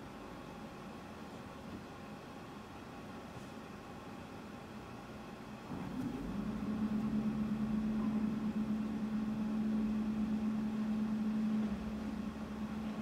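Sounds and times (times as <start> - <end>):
electric hoist motor humming: 5.1 - 13.0.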